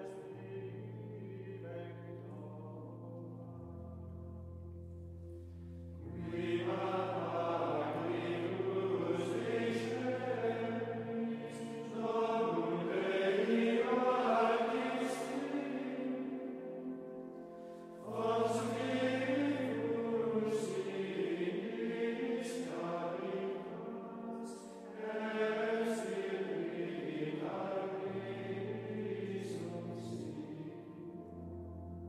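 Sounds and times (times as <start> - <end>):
male choir singing plainchant: 6.0 - 17.0, 18.0 - 31.1.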